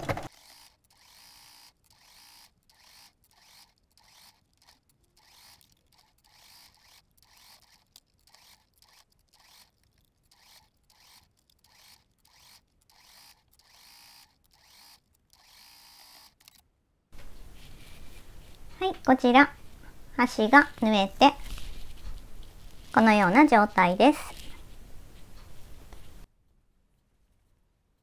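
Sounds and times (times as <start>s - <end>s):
faint sewing machine stitching: 0.0s - 16.6s.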